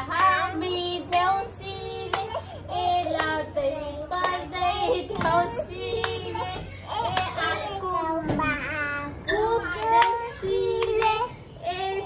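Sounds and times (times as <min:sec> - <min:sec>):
girl singing: 0:00.0 - 0:12.0
hand claps: 0:09.8 - 0:11.2.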